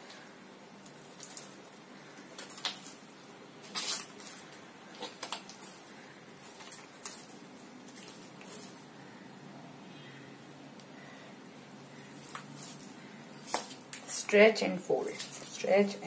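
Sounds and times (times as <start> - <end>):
dough squelching and slapping: 0.0 - 8.8, 12.0 - 14.1.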